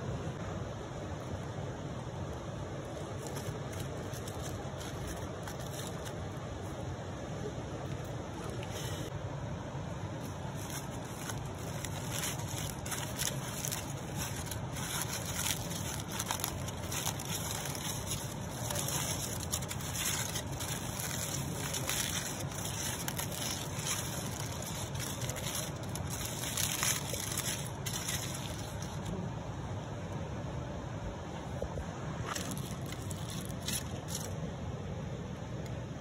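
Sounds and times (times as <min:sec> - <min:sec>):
steady low rush: 0:00.0 - 0:36.0
aluminium foil crinkling: 0:03.0 - 0:06.4, 0:10.2 - 0:29.1, 0:32.3 - 0:34.4.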